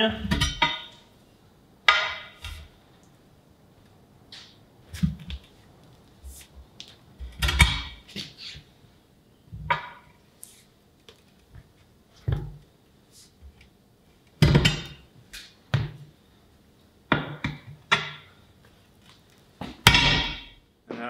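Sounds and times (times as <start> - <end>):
tire bar clanking on metal rim: 0.3 - 1.0, 19.8 - 20.6.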